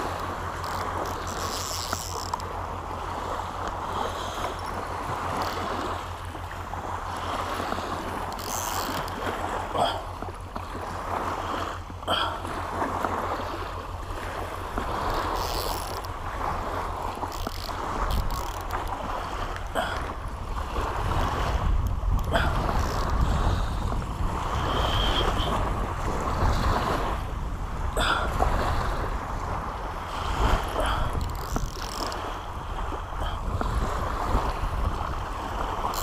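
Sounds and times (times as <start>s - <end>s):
small waves washing on beach: 0.0s - 36.0s
wind buffeting microphone: 0.0s - 36.0s
fishing reel cranking: 0.6s - 2.5s, 4.3s - 5.9s, 8.2s - 9.2s, 15.0s - 16.1s, 17.1s - 19.6s, 22.2s - 23.3s, 30.8s - 32.3s.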